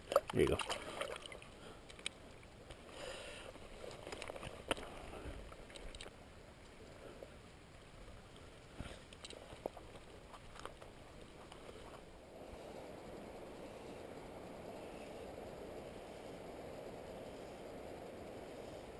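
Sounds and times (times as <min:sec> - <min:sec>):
river water lapping: 0:00.0 - 0:12.8.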